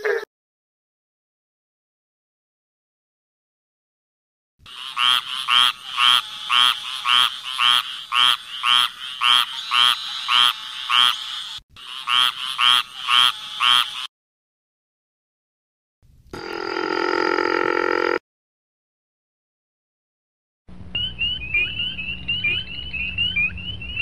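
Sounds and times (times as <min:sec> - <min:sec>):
raspy quacking frog calls: 0:04.7 - 0:14.1, 0:21.6 - 0:23.4
steady river frog call: 0:04.7 - 0:14.1, 0:20.9 - 0:24.0.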